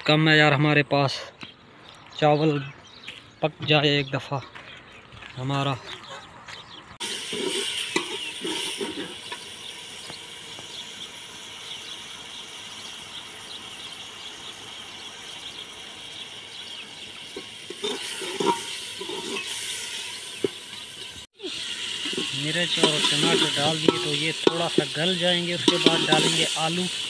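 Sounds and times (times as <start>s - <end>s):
onions sizzling with crackles: 7.0s - 27.0s.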